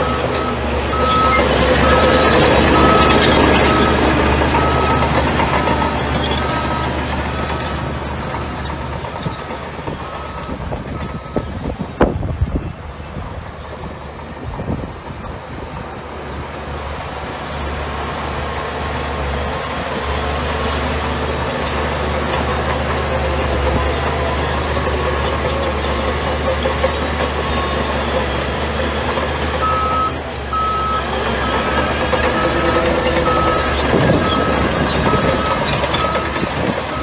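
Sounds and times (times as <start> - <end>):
reversing alarm beeping: 0.0 - 8.6, 9.2 - 11.6, 29.6 - 37.0
bulldozer diesel engine running: 0.0 - 37.0.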